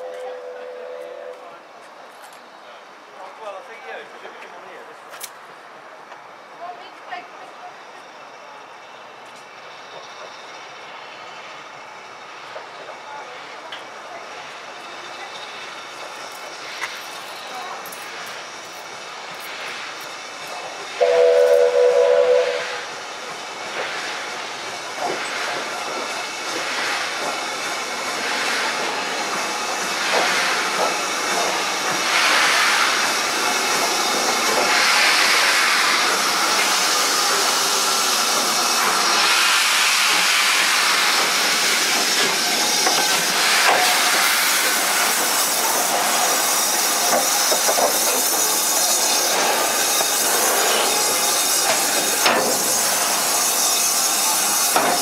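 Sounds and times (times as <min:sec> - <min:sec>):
steam locomotive whistle: 0:00.0 - 0:01.5, 0:21.0 - 0:23.0
steam hissing: 0:09.1 - 0:55.0.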